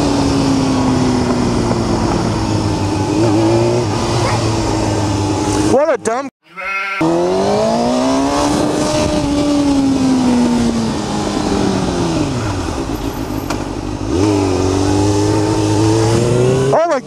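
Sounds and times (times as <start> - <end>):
wind on microphone: 0.0 - 5.7, 7.3 - 13.2
motorcycle engine revving: 0.0 - 5.9, 7.0 - 17.0.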